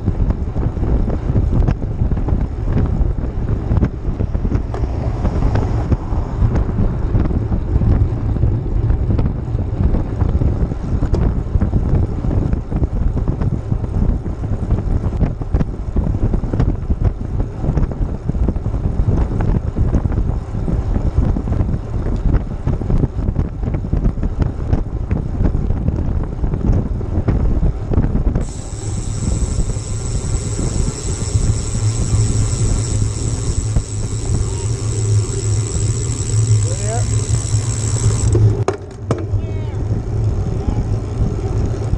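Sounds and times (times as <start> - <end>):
wind buffeting microphone: 0.0 - 41.9
high steady buzz: 28.4 - 38.8.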